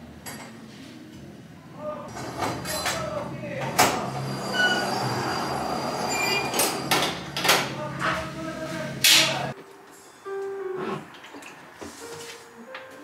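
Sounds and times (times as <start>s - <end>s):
short squeaks: 4.4s - 7.0s.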